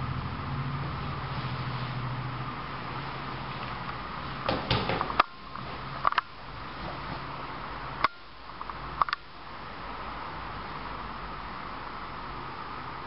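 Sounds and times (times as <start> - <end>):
background hiss and hum: 0.0 - 13.0
sharp clicks and knocks: 4.4 - 7.2, 8.0 - 9.3.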